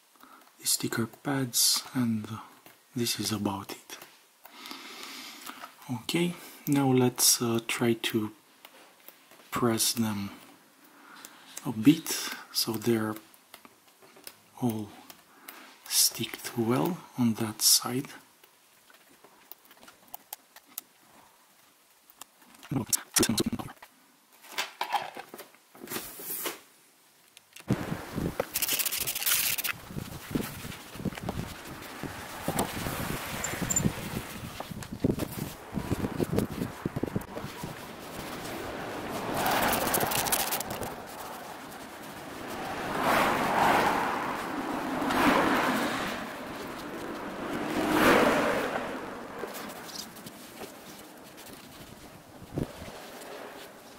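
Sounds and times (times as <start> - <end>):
outdoor noise: 0.0 - 53.9
scratchy rasps: 28.4 - 29.8, 37.3 - 43.4
plastic scraping and crinkling: 28.4 - 32.8
cars passing: 31.0 - 53.9.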